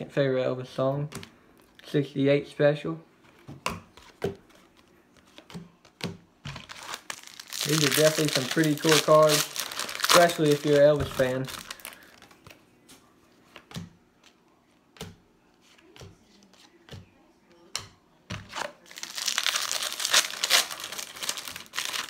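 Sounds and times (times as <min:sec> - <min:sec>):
foil wrapper crinkling: 0:06.6 - 0:12.6, 0:18.5 - 0:22.0.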